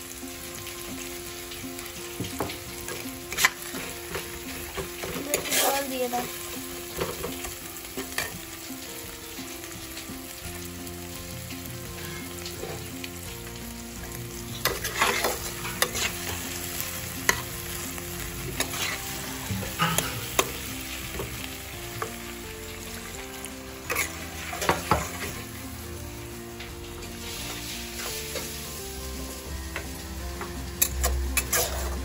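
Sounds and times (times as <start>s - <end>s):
spice paste sizzling in oil: 0.0s - 32.0s
metal spatula scraping pan: 2.8s - 6.2s, 14.6s - 17.8s, 18.4s - 21.4s, 23.9s - 25.4s, 30.8s - 32.0s
spatula knocking pan: 18.6s - 21.4s, 23.9s - 25.4s.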